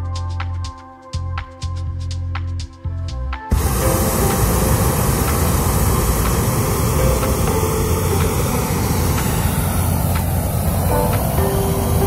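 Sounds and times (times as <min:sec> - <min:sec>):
hot air balloon inflator roaring: 0:03.5 - 0:12.0.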